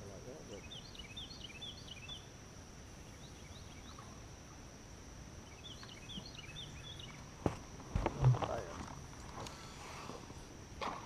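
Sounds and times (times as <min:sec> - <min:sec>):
insects droning: 0:00.0 - 0:11.0
bird chirping: 0:00.5 - 0:02.3, 0:03.0 - 0:04.2, 0:05.4 - 0:07.3.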